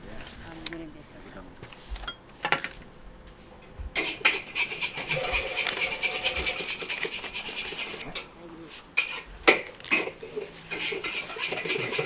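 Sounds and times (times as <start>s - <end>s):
rapid rasping scrape: 4.0s - 8.0s, 10.6s - 12.0s.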